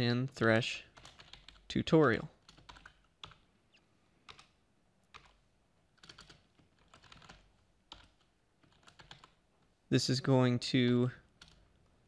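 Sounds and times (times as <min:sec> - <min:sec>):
typing on keyboard: 0:00.9 - 0:01.7, 0:02.4 - 0:03.4, 0:04.3 - 0:05.4, 0:06.0 - 0:09.4, 0:11.2 - 0:11.8.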